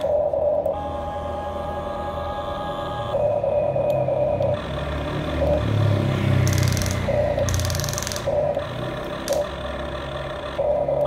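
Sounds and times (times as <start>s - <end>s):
high-pitched motor whine: 0.0s - 11.0s
small electric motors whirring: 5.4s - 11.0s.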